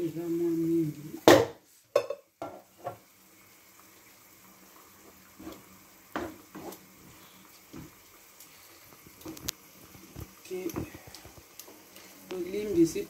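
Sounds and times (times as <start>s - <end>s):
faint sizzle of frying: 0.0s - 13.0s
wooden spoon knocking on pan: 1.2s - 3.0s, 6.1s - 6.7s
wooden spoon stirring vegetables: 5.3s - 8.0s.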